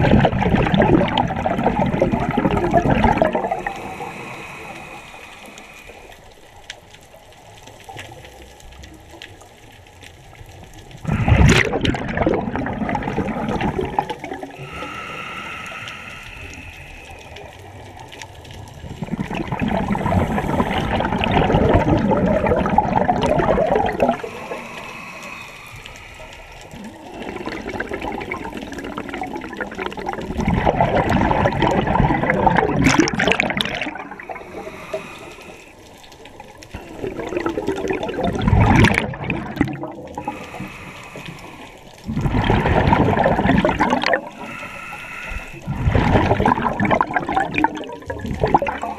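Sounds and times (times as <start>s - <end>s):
regulator bubbles rushing: 0.0s - 6.0s, 11.0s - 15.0s, 15.9s - 26.1s, 26.7s - 35.2s, 36.2s - 40.7s, 42.0s - 44.6s, 45.6s - 48.9s.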